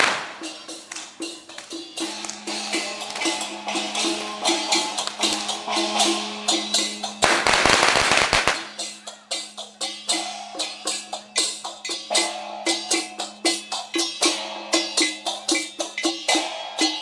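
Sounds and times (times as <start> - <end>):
firecrackers crackling: 0.0 - 2.4, 3.0 - 3.4, 7.2 - 9.0
percussion playing fast beat: 0.0 - 17.0.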